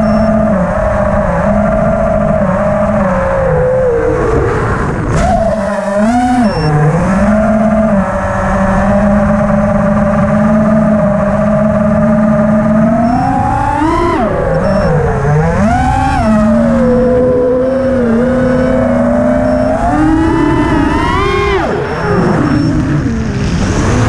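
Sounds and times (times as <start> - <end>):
drone motors whining: 0.0 - 24.0
wind rumbling on microphone: 0.0 - 24.0.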